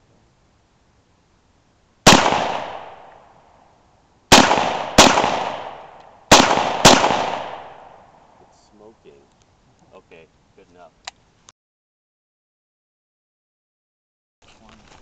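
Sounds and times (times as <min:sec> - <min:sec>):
rifle shots with echo: 0:02.0 - 0:03.3, 0:04.3 - 0:08.4.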